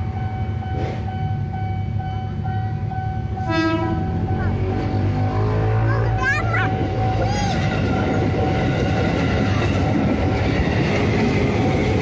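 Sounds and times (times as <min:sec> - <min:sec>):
child exclaiming: 0:05.8 - 0:07.7.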